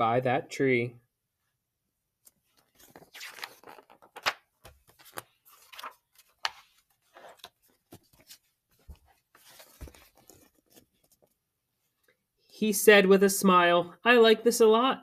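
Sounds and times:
paper pages flipping: 2.2s - 11.4s.

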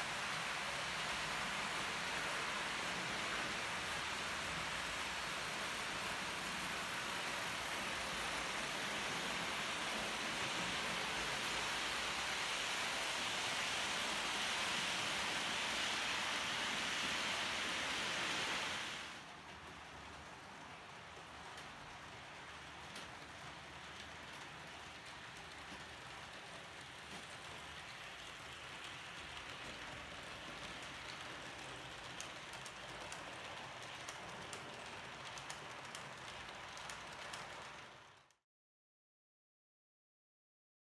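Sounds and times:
model train wheels rushing on rails: 0.0s - 38.4s
wheels clicking over rail joints: 19.3s - 38.4s.

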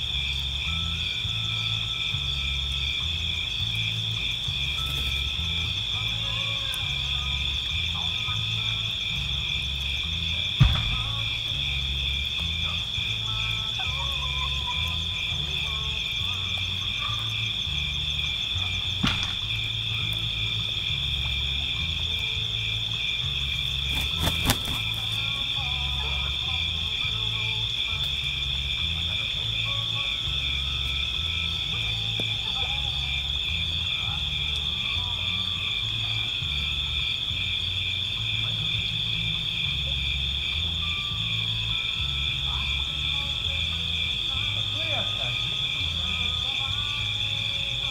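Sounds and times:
insects calling in chorus: 0.0s - 47.9s.

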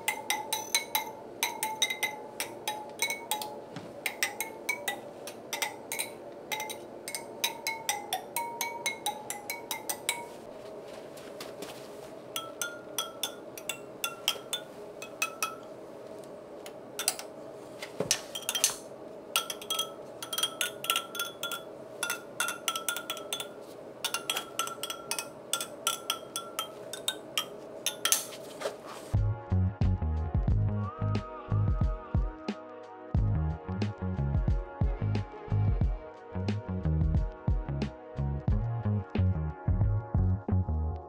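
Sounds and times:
steady hum: 0.0s - 29.4s.

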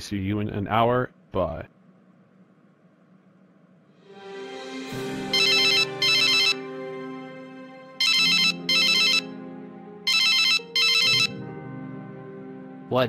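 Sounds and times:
soft background music: 3.9s - 13.0s
telephone ringing: 5.3s - 6.6s, 8.0s - 9.4s, 10.0s - 11.5s.

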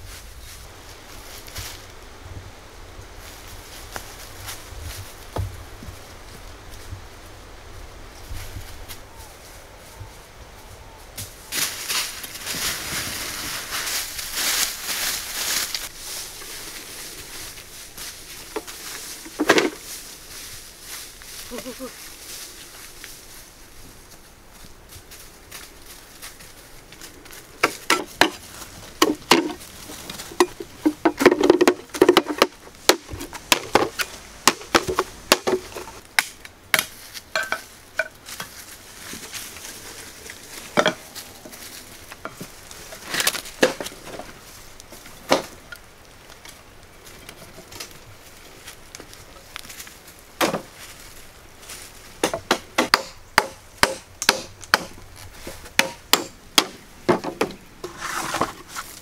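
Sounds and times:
bamboo poles knocking and clattering: 11.2s - 20.0s, 27.0s - 48.2s, 48.9s - 50.9s, 51.7s - 59.0s.

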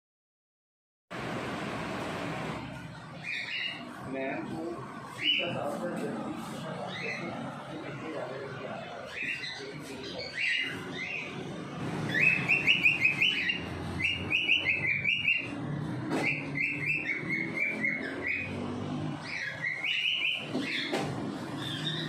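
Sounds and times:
bird chirping: 3.1s - 4.1s, 8.8s - 22.0s.

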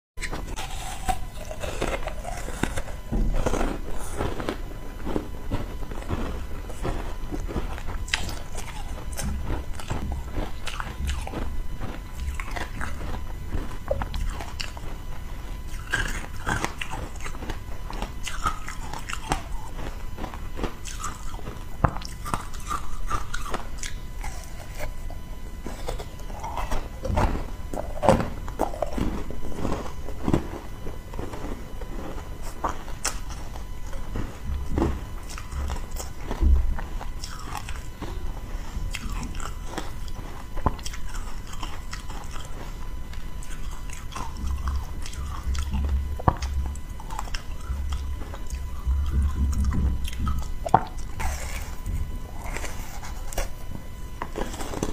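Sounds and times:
crunching frozen ice: 0.2s - 54.9s.

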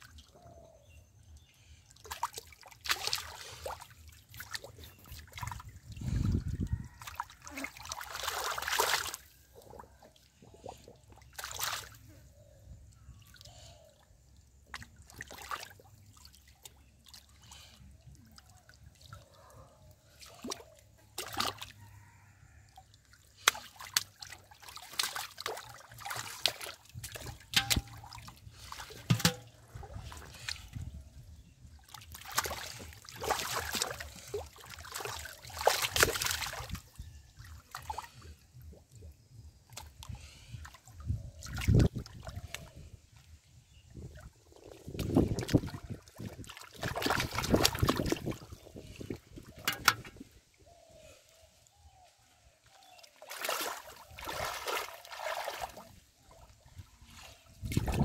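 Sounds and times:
muddy water splashing: 1.5s - 12.4s, 13.0s - 22.2s, 22.8s - 58.0s
fish thrashing in water: 2.0s - 5.7s, 6.8s - 12.0s, 20.2s - 22.3s, 23.3s - 30.9s, 31.8s - 38.2s, 44.0s - 50.2s, 53.2s - 56.5s.

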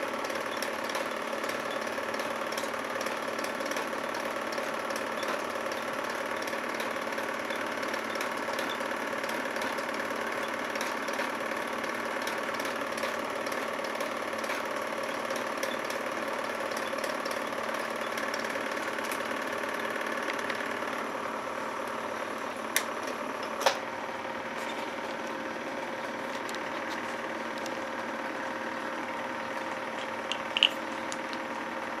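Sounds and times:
film projector whirring: 0.0s - 32.0s
sharp clicks: 29.5s - 31.5s.

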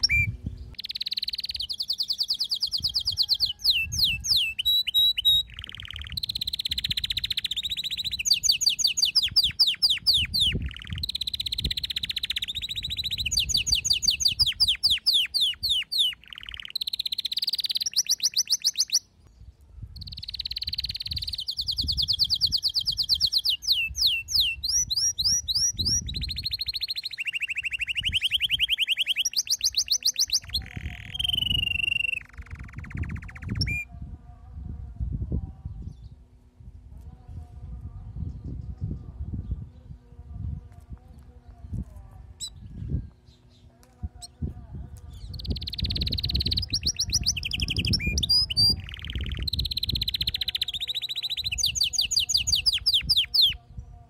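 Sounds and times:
canary singing: 0.0s - 19.2s, 19.9s - 33.9s, 41.2s - 53.6s.

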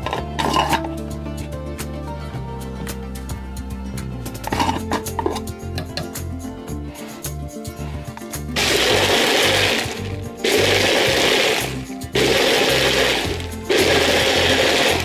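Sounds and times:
background music with steady beat: 0.0s - 15.0s
blender running in pulses: 8.6s - 15.0s.

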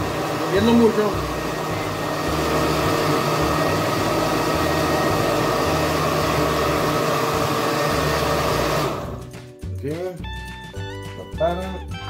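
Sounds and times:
blender running: 0.0s - 9.3s.

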